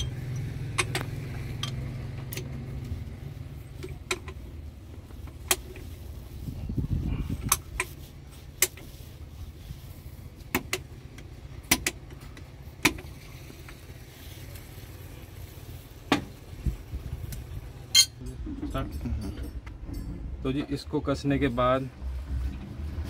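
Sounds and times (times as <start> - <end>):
steady low rumble: 0.8 - 13.4, 14.0 - 23.0
metal tool clinking on metal: 17.9 - 20.8.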